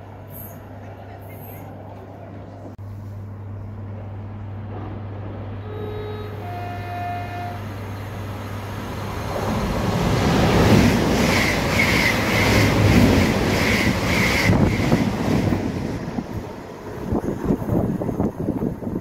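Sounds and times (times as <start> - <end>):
train rushing rumble: 4.6 - 19.0
two-tone train horn: 5.6 - 7.9.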